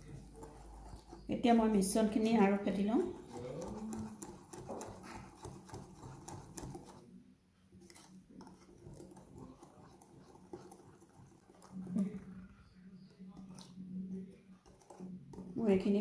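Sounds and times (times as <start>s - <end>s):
whisk beating batter in bowl: 0.0s - 7.1s, 7.8s - 16.0s.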